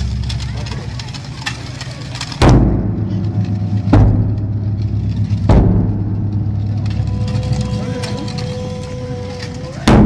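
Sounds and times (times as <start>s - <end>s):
large drum booming: 2.4s - 7.8s.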